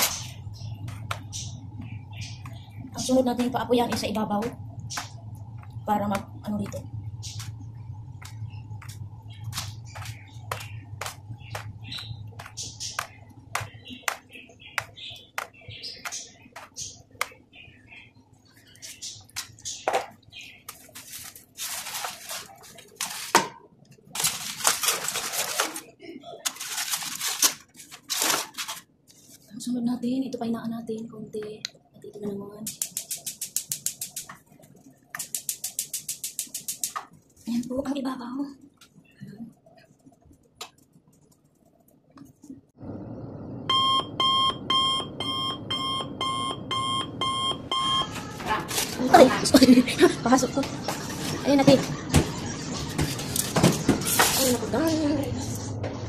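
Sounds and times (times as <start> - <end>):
fan whir: 0.0 - 29.7, 30.3 - 56.0
aluminium foil crinkling: 20.6 - 23.4, 24.0 - 29.5, 48.3 - 49.7
oven beeper alert: 43.6 - 48.8.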